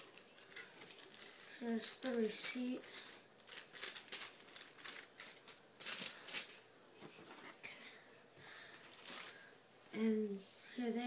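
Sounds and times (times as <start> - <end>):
paper rustling and crinkling: 0.0 - 7.6, 8.7 - 9.5.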